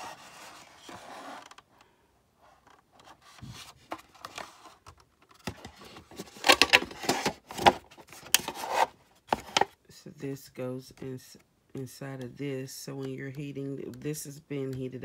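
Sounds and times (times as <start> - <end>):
knocks and scrapes: 0.0 - 1.6, 2.6 - 9.7
plastic scraping against box: 0.0 - 1.6, 2.6 - 9.7.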